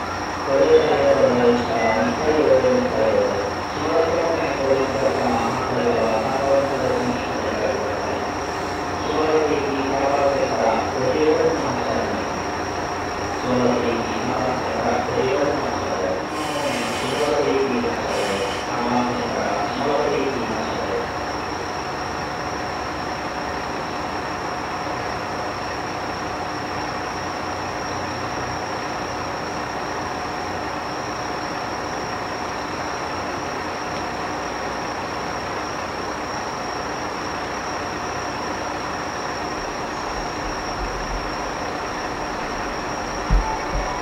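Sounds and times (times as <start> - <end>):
diesel railcars idling: 0.0 - 44.0
high-pitched whine: 35.5 - 44.0
distant fireworks rumble: 39.4 - 44.0.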